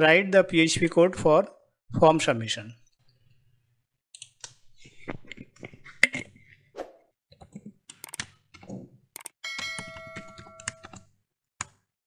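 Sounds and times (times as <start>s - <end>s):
keyboard key clicks: 9.2s - 11.0s.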